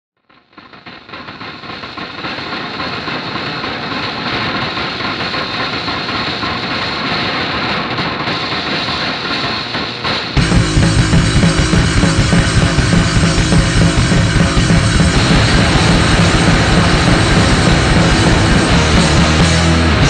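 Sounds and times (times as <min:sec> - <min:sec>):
rumbling noise drone: 0:10.3 - 0:20.0.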